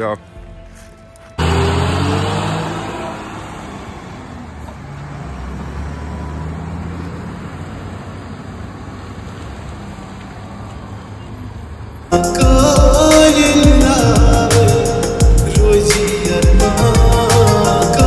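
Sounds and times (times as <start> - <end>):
diesel truck engine pulling away: 0.4 - 18.0.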